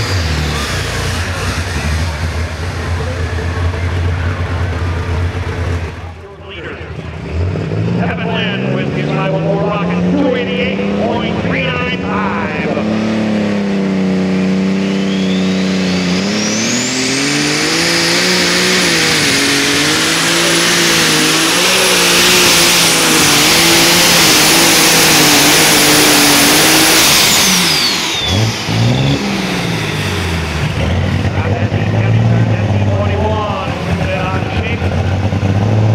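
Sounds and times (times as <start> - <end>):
tractor engine under load: 0.0 - 7.2, 8.1 - 35.9
high whistle: 14.8 - 17.2.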